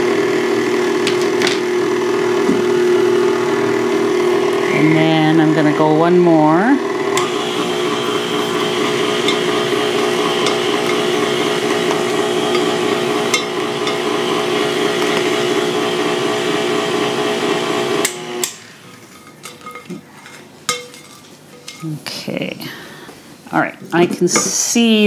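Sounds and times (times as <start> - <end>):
stand mixer running: 0.0 - 18.8.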